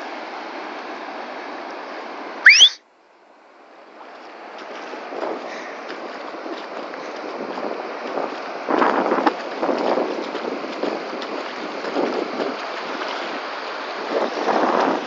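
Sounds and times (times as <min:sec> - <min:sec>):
surf washing over beach: 0:03.8 - 0:15.0.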